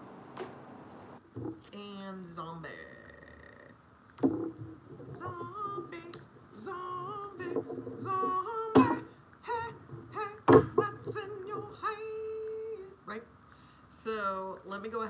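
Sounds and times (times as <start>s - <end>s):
sharp knocks: 4.2s - 6.2s, 7.4s - 11.8s.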